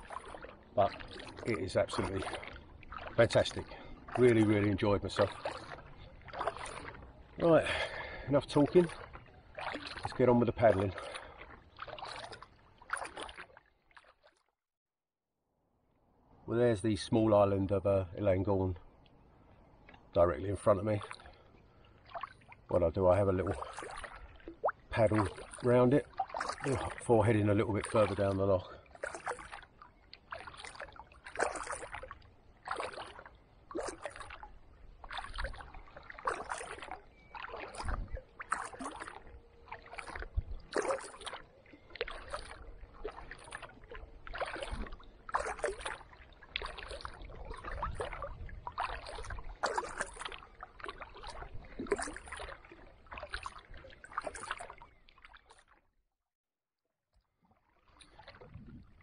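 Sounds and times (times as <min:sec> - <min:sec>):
paddle splashing in water: 0:00.0 - 0:14.6, 0:19.7 - 0:55.9, 0:57.2 - 0:59.0.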